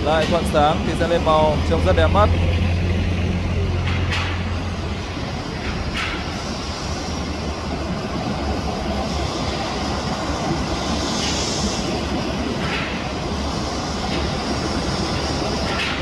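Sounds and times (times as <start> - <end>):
jet engines rumbling and hissing: 0.0 - 16.0.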